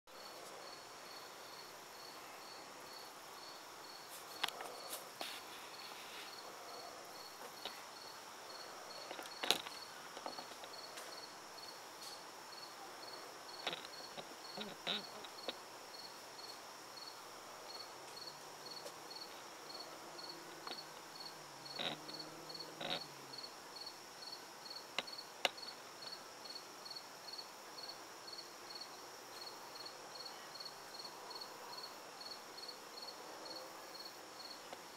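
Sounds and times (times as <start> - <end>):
crickets chirping: 0.1 - 34.9
high insect trill: 0.2 - 31.1.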